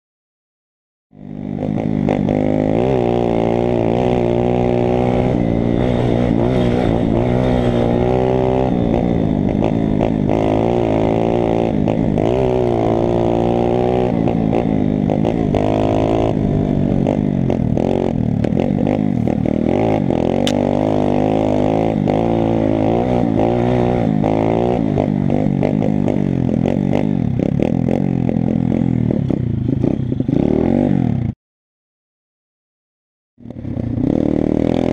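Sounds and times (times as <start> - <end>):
pit bike engine revving: 1.2 - 31.3, 33.4 - 34.9.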